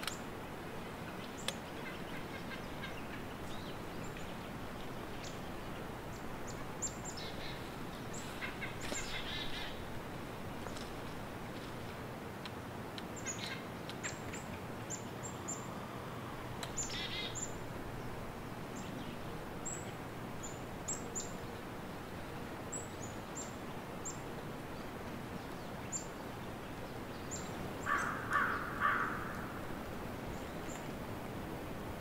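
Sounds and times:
small birds chirping: 0.0s - 12.0s, 13.0s - 31.0s
louder lower bird calls: 1.2s - 10.0s, 13.2s - 17.7s, 27.2s - 29.8s
bird trill: 16.8s - 17.6s.

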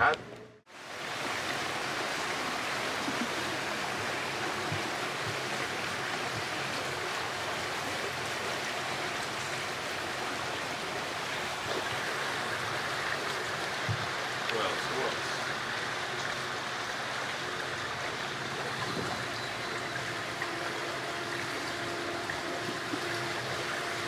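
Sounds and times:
water rushing along boat hull: 0.7s - 24.0s.

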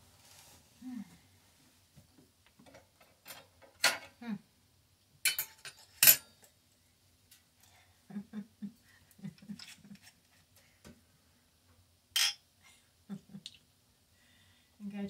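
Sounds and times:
glass bottles and tableware clinking: 12.2s - 12.4s.

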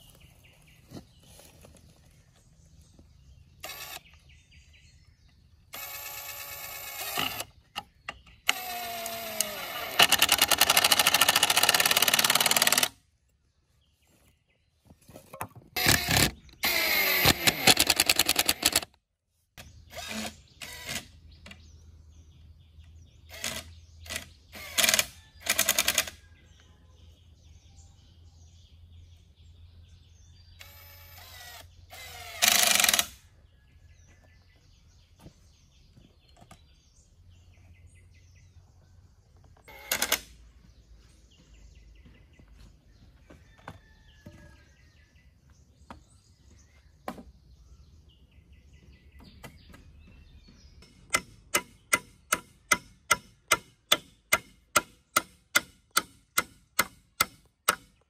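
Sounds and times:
faint birdsong: 0.0s - 58.0s
hammer striking nail: 50.8s - 58.0s.

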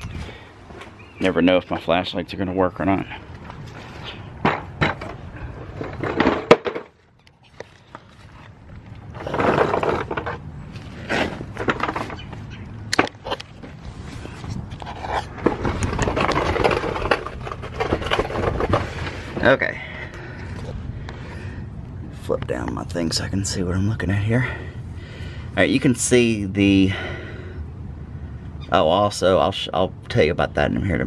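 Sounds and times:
creeper casters rolling and scraping: 0.7s - 20.7s
knocks and clatters: 4.4s - 7.8s, 8.9s - 10.4s, 11.1s - 13.8s, 14.7s - 19.2s.

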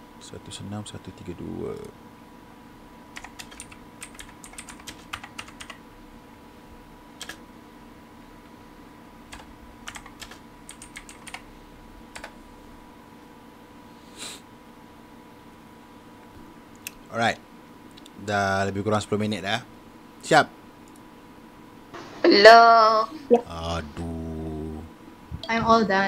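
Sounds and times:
faint steady hum: 0.0s - 26.0s
typing on keyboard: 3.2s - 5.8s, 7.2s - 7.4s, 9.3s - 11.5s, 12.2s - 12.4s.

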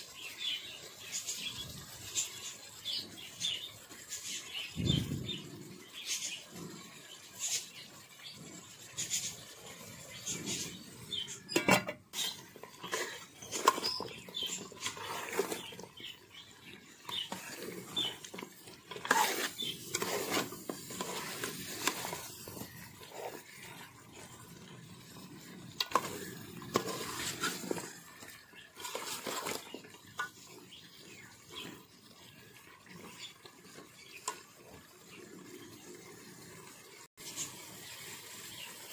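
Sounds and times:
metal ladle scraping pot: 9.0s - 30.5s.

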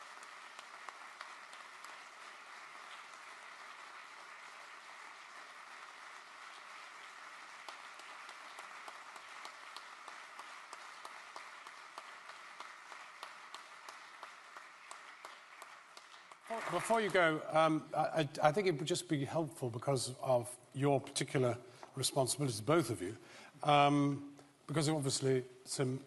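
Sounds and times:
audience applauding: 0.0s - 18.6s.

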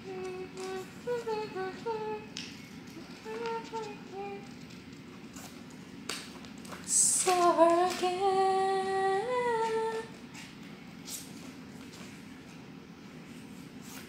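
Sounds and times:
woman humming: 0.0s - 2.3s, 3.0s - 4.5s.

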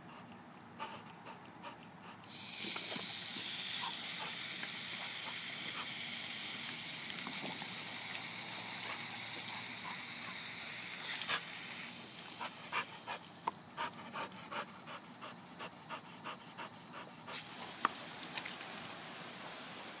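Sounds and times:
dog panting: 0.0s - 2.2s, 3.8s - 6.0s, 12.3s - 17.4s
hose water spray hissing: 2.2s - 20.0s.

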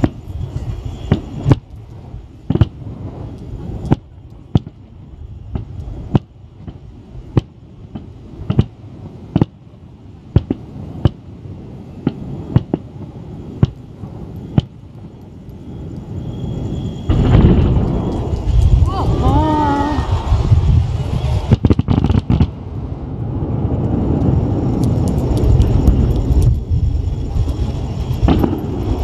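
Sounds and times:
continuous low rumble: 0.0s - 29.0s
fireworks bangs: 0.0s - 29.0s.

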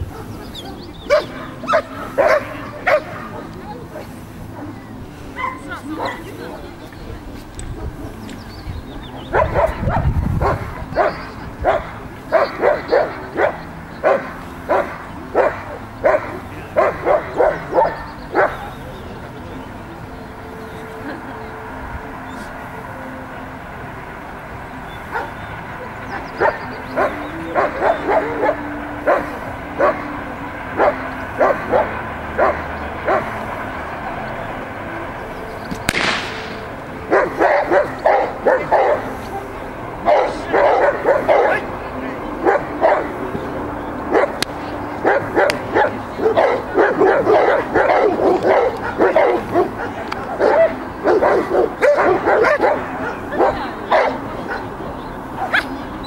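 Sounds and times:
dog barking: 0.0s - 3.6s, 5.4s - 6.3s, 9.3s - 18.7s, 26.4s - 30.1s, 30.8s - 33.4s, 37.1s - 39.3s, 40.0s - 41.7s, 42.4s - 43.1s, 44.1s - 44.4s, 45.0s - 54.7s, 55.4s - 55.8s
sudden loud noise: 35.7s - 37.0s.

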